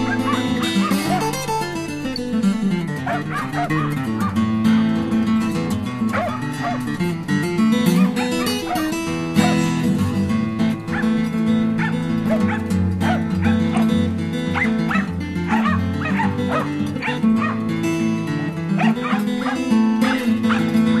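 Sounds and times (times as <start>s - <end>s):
dog barking high: 0.0s - 1.7s, 3.0s - 4.4s, 6.1s - 7.0s, 7.9s - 9.8s, 10.9s - 11.2s, 11.8s - 17.7s, 18.8s - 21.0s
music: 0.0s - 21.0s.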